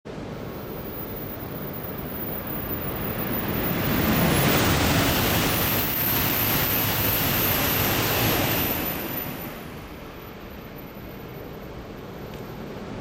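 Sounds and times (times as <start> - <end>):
high speed train passing: 0.1 - 13.0.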